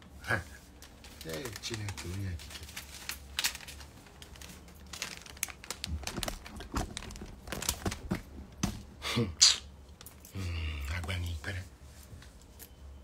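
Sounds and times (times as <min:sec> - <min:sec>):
fabric rustling and crinkling: 0:00.3 - 0:08.9.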